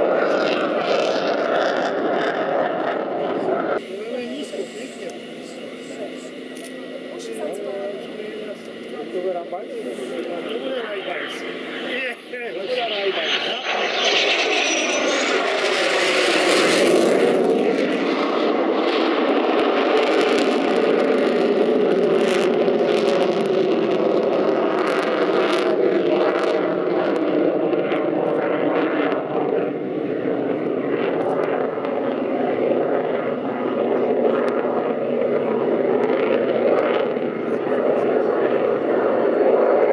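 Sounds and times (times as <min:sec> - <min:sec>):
jet engine roar: 0:00.0 - 0:39.9.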